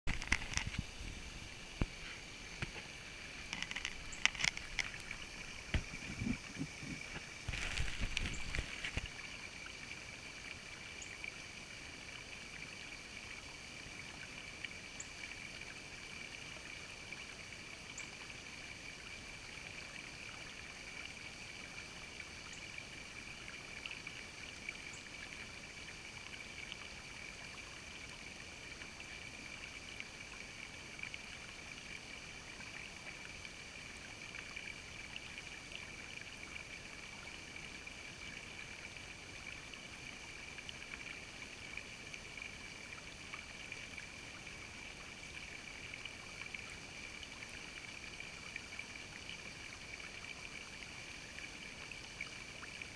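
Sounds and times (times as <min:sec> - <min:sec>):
creek water trickling over rocks: 0:00.1 - 0:52.9
faint clicks: 0:01.8 - 0:09.2.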